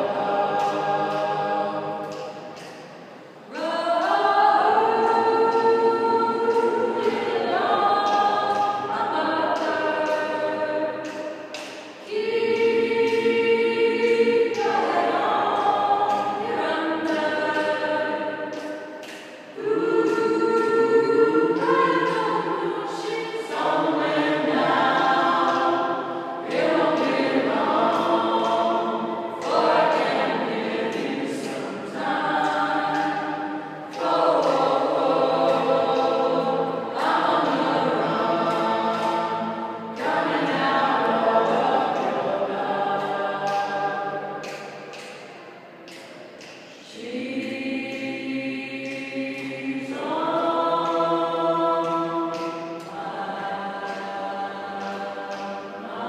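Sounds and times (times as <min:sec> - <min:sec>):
choir singing a cappella: 0:00.0 - 0:56.0.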